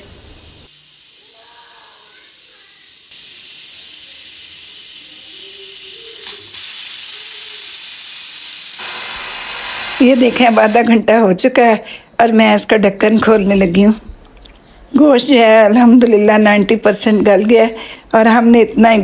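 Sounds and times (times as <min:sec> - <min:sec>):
pressure cooker hissing: 0:00.0 - 0:10.9.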